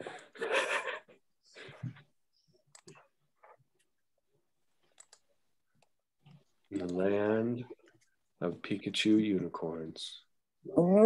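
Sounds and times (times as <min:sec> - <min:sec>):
person laughing breathily: 0:00.0 - 0:02.0
faint clicks: 0:02.7 - 0:03.0, 0:04.8 - 0:07.0.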